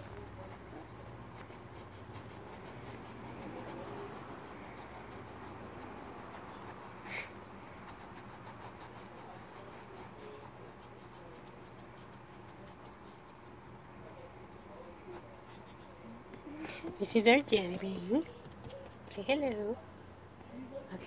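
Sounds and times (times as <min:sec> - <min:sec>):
paintbrush scratching on canvas: 0:00.0 - 0:16.0.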